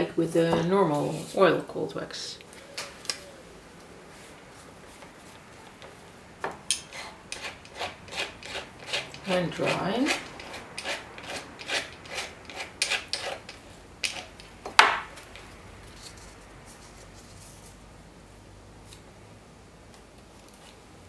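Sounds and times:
palette knife scraping palette: 6.8 - 14.5.

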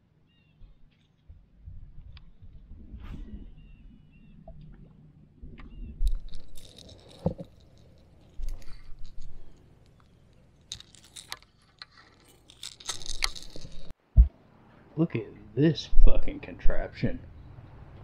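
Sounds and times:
small hard objects clattering: 5.8 - 14.0.

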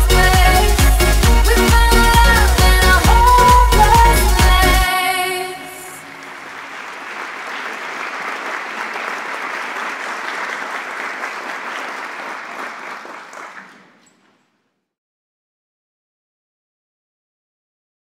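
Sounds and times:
audience applauding: 5.8 - 14.4.

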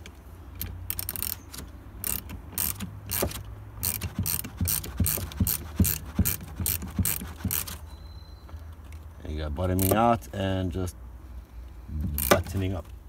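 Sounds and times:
ratchet spanner clicking: 0.6 - 7.8, 9.8 - 10.0, 12.2 - 12.5.

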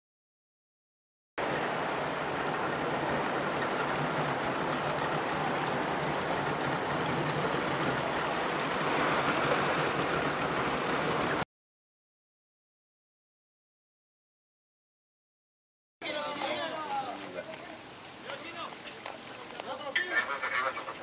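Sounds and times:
seawater rushing and splashing: 1.4 - 11.4.

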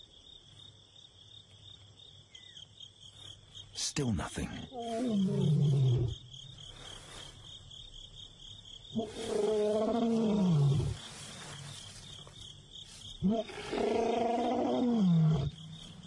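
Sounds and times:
insects chirping: 0.0 - 16.0
lion calling: 4.6 - 6.3, 8.9 - 11.3, 13.2 - 15.6.

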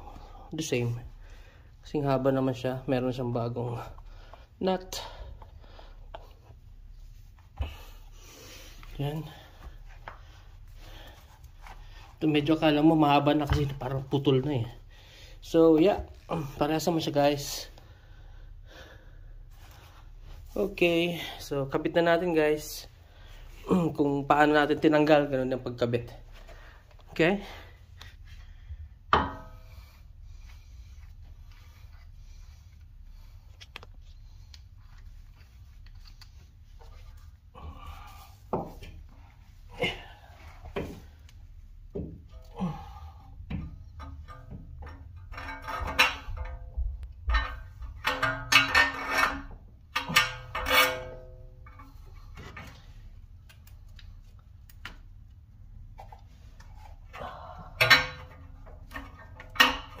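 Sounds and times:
low steady hum: 0.0 - 60.0
metal clank ringing: 29.1 - 29.7, 57.8 - 58.4.

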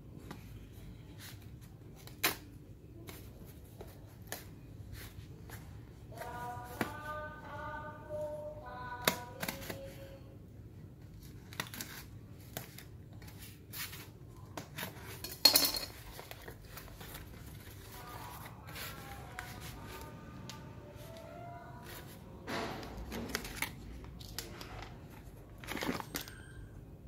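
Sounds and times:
cardboard rustling: 15.9 - 20.1.

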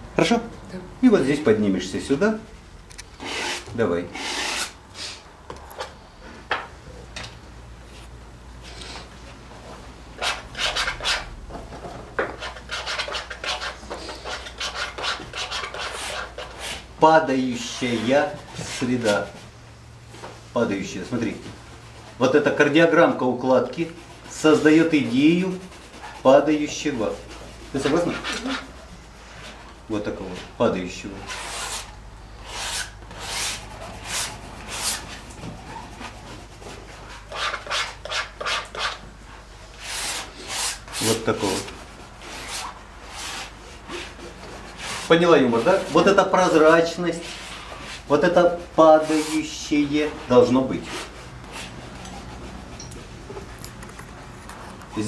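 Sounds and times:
palette knife scraping paint: 12.3 - 16.9, 23.6 - 29.7, 31.3 - 39.0.

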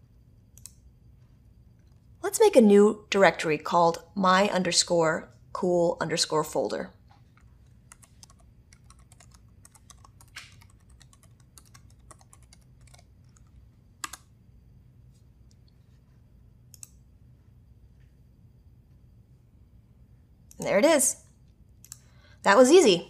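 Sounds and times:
computer keyboard typing: 7.3 - 14.3, 16.7 - 17.0.

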